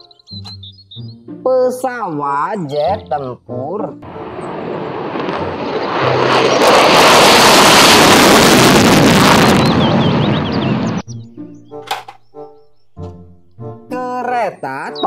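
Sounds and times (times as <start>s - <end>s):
jet roar taking off: 4.0s - 11.1s.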